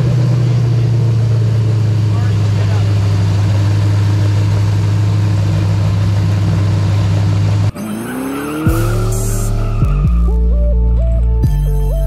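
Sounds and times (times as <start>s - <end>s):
engine running steadily: 0.0s - 12.0s
intro music with rising sweeps: 5.4s - 12.0s.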